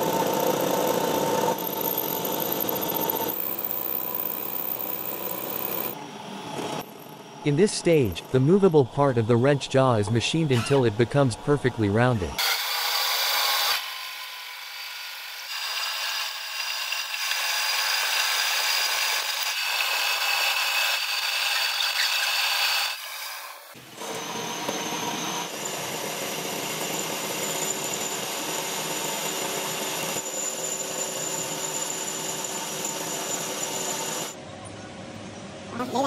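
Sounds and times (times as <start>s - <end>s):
metal lathe cutting steel: 7.8s - 34.4s.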